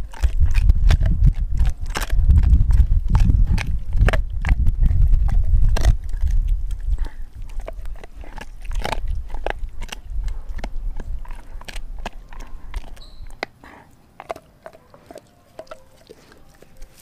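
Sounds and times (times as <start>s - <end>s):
low rumble: 0.0s - 13.4s
dog gnawing on bone: 0.0s - 17.0s.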